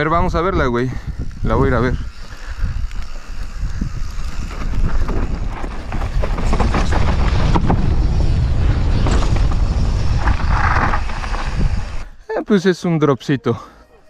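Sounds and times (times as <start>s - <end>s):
bike chain and suspension rattling: 0.0s - 12.1s
wind on microphone: 0.0s - 12.2s
tyres rolling on dirt: 3.0s - 12.1s.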